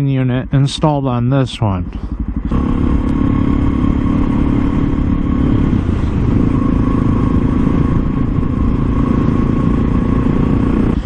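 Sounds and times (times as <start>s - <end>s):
motorcycle engine running: 0.0s - 11.0s
wind rumbling on microphone: 2.2s - 11.0s.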